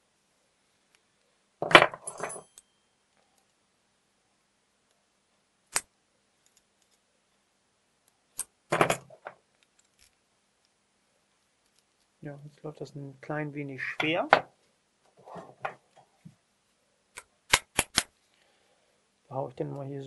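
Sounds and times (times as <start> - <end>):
small metal parts clattering: 1.7 - 2.7
metallic ring: 2.0 - 3.0.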